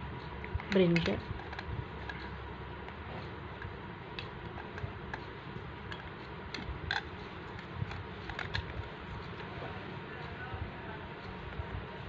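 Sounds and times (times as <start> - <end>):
low background hum: 0.0 - 12.0
plastic toys clicking and tapping: 0.6 - 2.3, 5.9 - 8.8.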